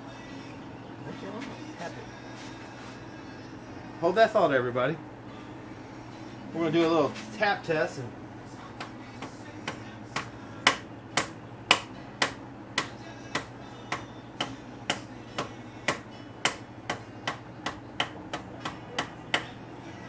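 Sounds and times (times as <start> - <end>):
tool tapping on metal: 8.8 - 19.6.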